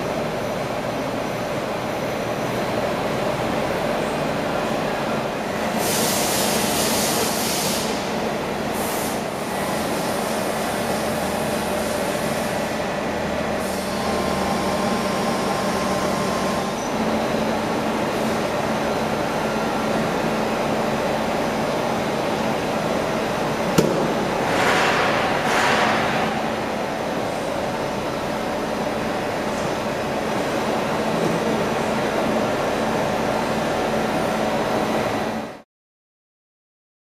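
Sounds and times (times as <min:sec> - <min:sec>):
machine steady mechanical hum: 0:00.0 - 0:35.6
machine hiss: 0:05.6 - 0:12.9, 0:13.5 - 0:16.8.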